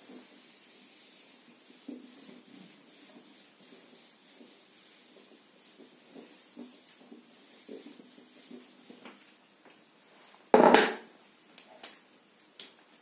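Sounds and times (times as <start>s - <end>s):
marker pen on whiteboard: 0.0s - 9.8s
knock: 10.6s - 11.1s.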